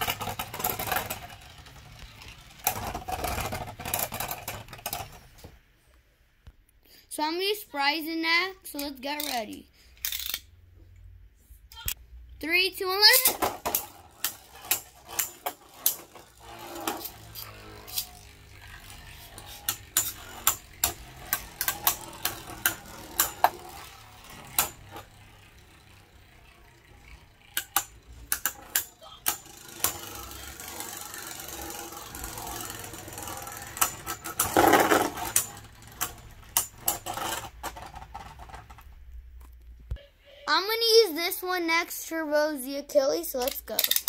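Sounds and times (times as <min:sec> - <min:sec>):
spinning tops clashing: 0:13.0 - 0:38.7.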